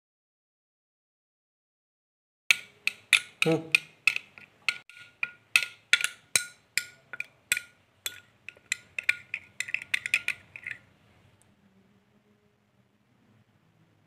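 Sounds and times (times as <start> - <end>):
spoon clinking against glass bowl: 2.5 - 10.9.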